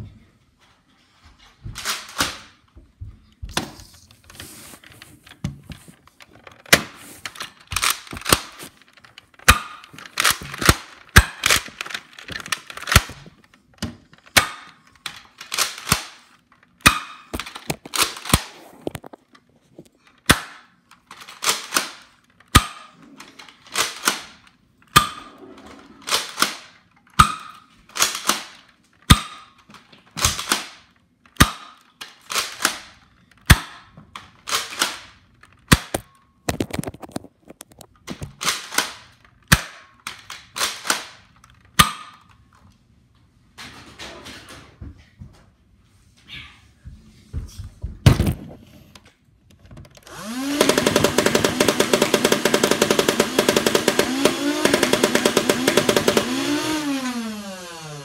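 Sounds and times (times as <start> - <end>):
foam-dart blaster firing: 50.6 - 56.6.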